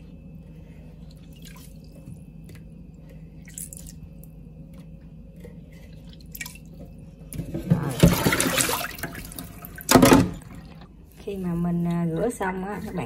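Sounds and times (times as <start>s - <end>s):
low steady hum: 0.0s - 13.0s
water splashing into metal sink: 7.4s - 10.8s.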